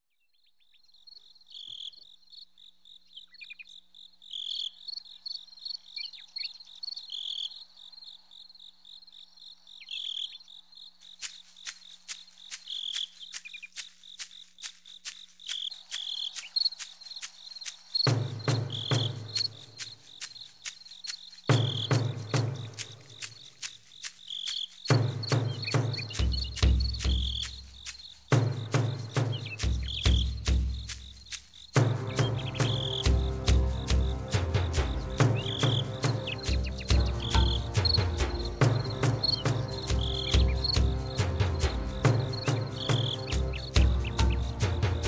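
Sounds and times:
crickets chirping: 0.2 - 45.0
running footsteps on dirt trail: 9.9 - 45.0.

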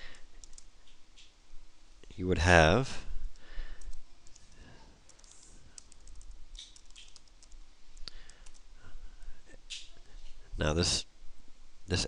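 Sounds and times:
keyboard keystroke clicks: 5.1 - 8.6.

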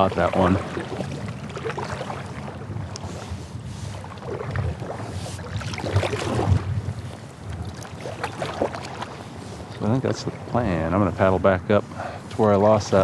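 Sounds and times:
paddle strokes swishing water: 0.0 - 13.0.

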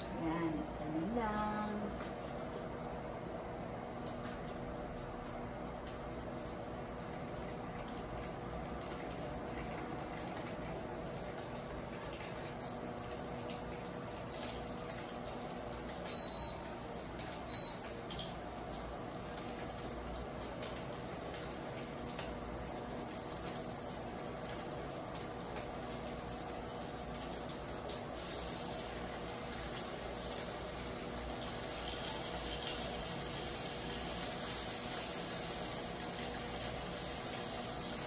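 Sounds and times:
steady low hum and hiss: 0.0 - 38.0.

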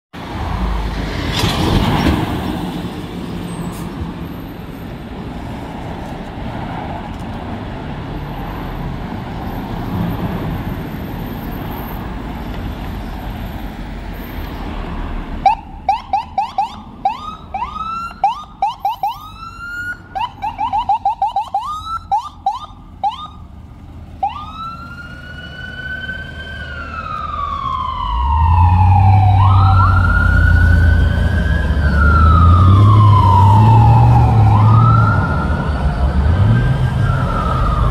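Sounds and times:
street noise: 0.1 - 37.9
ambulance siren chirps and wail: 15.4 - 23.5, 24.2 - 37.9.

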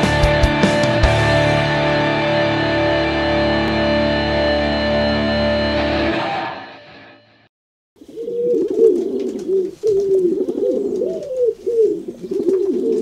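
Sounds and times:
pigeons cooing: 8.0 - 13.0.

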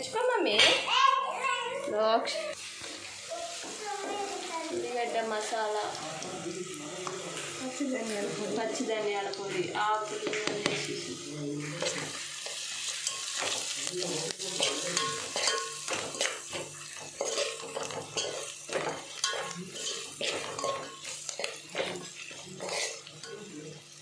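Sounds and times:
onions sizzling in oil: 0.0 - 24.0
ladle scraping metal pot: 14.6 - 16.6, 17.2 - 23.3.

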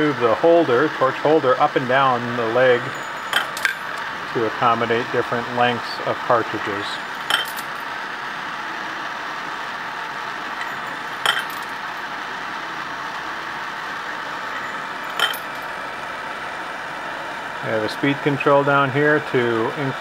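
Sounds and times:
metallic clinks of brass cases: 3.0 - 4.1, 7.2 - 7.8, 10.6 - 11.8, 14.6 - 15.7.

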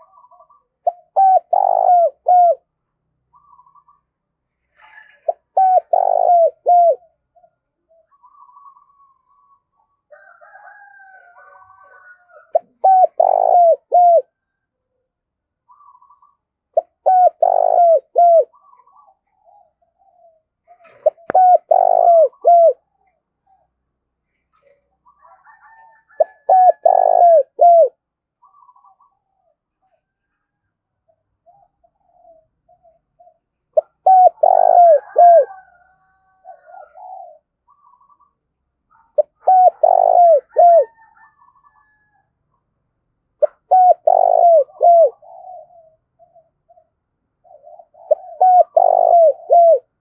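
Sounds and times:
dove cooing: 0.0 - 2.7, 4.7 - 14.4, 15.7 - 23.7, 24.5 - 30.3, 31.1 - 38.3, 38.9 - 42.1, 43.4 - 50.0
faint high bird calls: 15.6 - 42.6.

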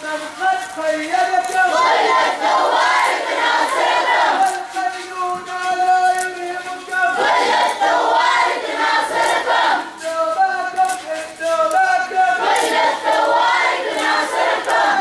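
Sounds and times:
lead voice singing: 0.0 - 15.0
crowd chanting: 1.0 - 4.8, 6.8 - 10.7, 11.5 - 15.0.

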